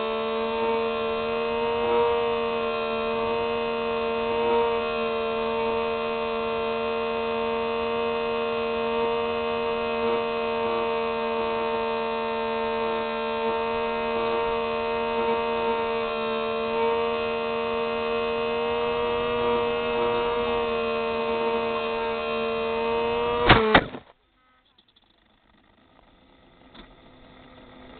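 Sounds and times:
electric propeller motor whining: 0.0 - 27.9
plane crashing into grass: 23.3 - 24.1.

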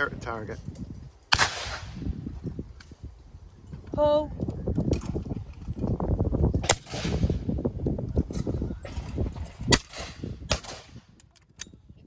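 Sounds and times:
shotgun shots echoing: 1.3 - 2.0.

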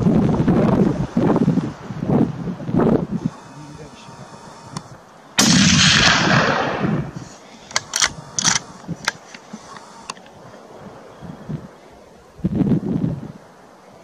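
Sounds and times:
gunshot: 5.4 - 7.2.

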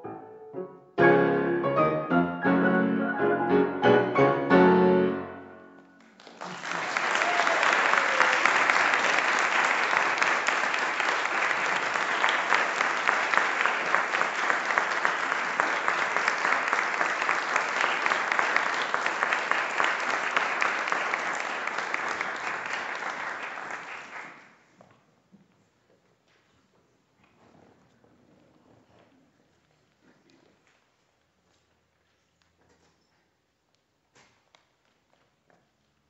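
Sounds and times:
audience applauding: 5.8 - 24.6.

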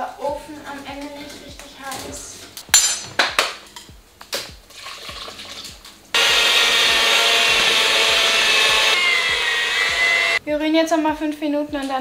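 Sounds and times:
electric hand mixer running: 6.2 - 10.4.

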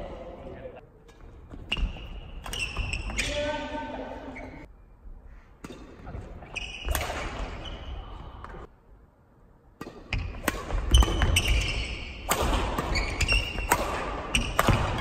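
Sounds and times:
rackets striking shuttlecock: 9.7 - 15.0.

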